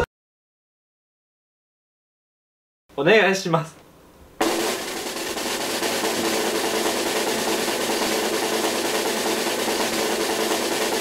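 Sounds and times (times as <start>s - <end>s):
snare drum roll: 4.4s - 11.0s.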